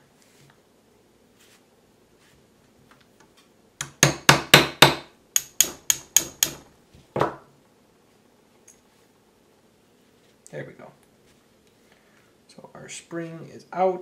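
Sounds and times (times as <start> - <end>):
hammer tapping metal pin punch: 3.8 - 6.6.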